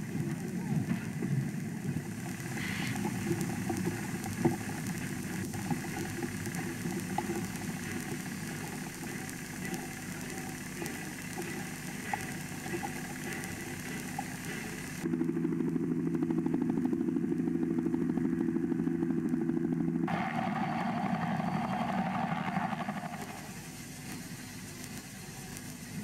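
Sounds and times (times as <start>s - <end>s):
faint ticks: 0.0s - 15.1s, 22.8s - 26.0s
low mechanical rumble: 0.0s - 26.0s.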